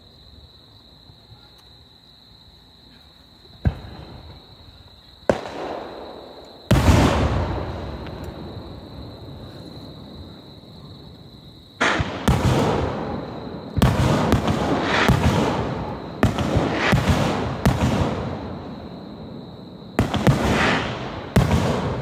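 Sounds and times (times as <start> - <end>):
firework booms: 3.6 - 4.5, 5.2 - 11.2, 11.8 - 22.0
firework crackling: 11.8 - 19.1, 20.0 - 22.0.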